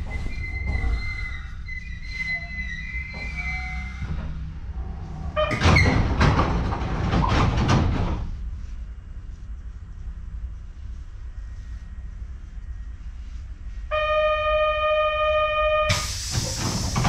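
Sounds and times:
train low rumble: 0:00.0 - 0:17.0
train doors sliding open with air rush: 0:03.1 - 0:08.6, 0:15.9 - 0:17.0.

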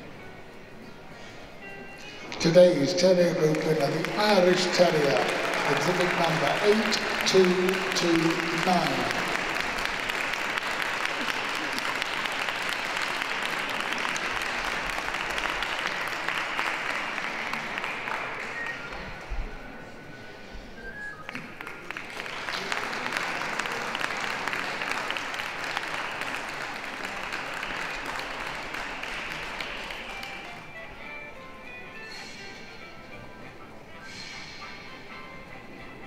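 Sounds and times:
quiet background music: 0:00.0 - 0:36.0
audience applauding: 0:02.4 - 0:19.3, 0:21.2 - 0:30.7.

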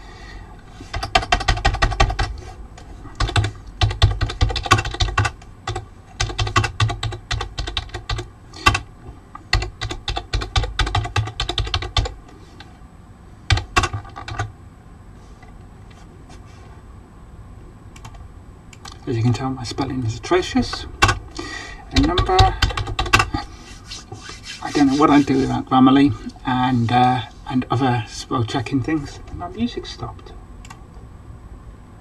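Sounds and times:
fast typing on keyboard: 0:00.9 - 0:02.4, 0:03.2 - 0:08.9, 0:09.5 - 0:12.2, 0:13.5 - 0:14.5, 0:20.7 - 0:21.2, 0:21.9 - 0:23.4.

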